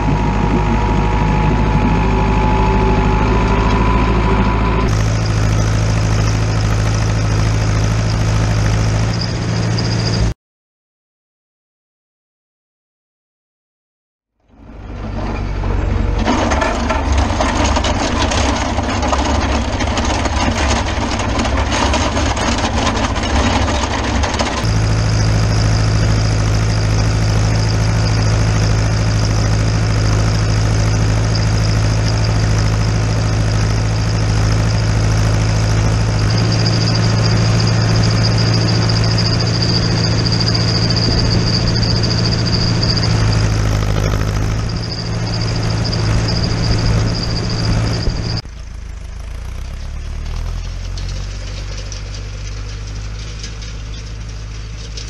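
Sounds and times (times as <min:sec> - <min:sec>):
high whine: 0:00.0 - 0:10.3, 0:15.3 - 0:49.5
tractor diesel engine running: 0:00.0 - 0:10.4, 0:14.4 - 0:55.0.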